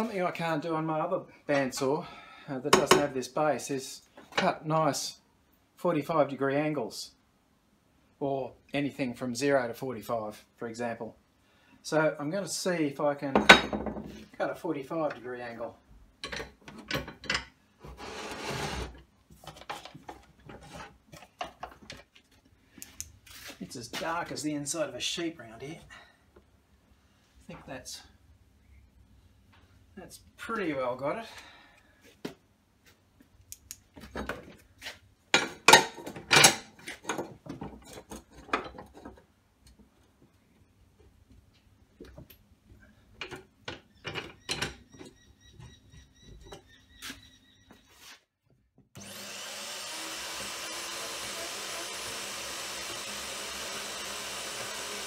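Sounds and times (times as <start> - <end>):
scraping rub: 17.8 - 19.0.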